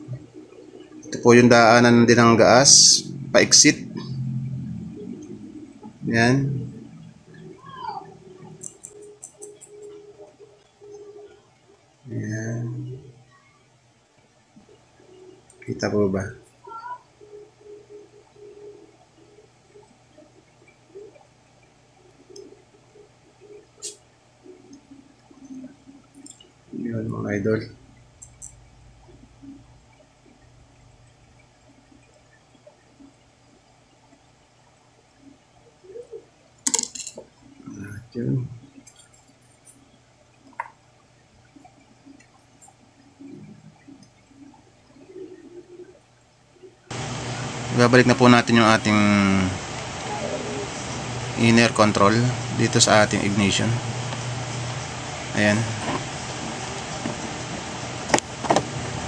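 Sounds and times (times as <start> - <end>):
faint irregular low sounds: 0.0 - 36.6, 37.2 - 59.0
handling small metal part: 36.7 - 37.2.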